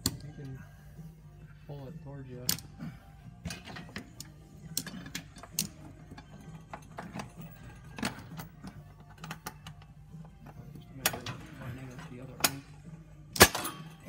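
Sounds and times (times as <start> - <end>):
metallic clicks of bolts: 3.5 - 5.8.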